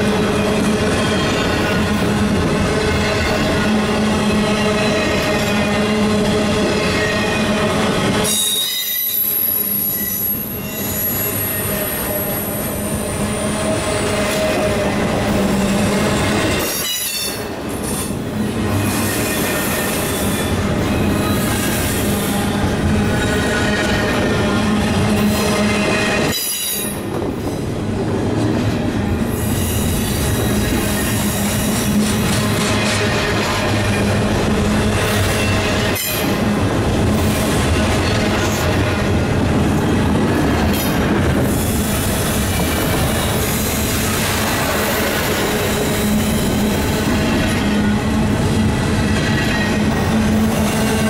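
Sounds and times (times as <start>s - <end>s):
train wheels rumbling on rails: 0.0s - 51.0s
high-pitched wheel squeal: 8.2s - 12.5s.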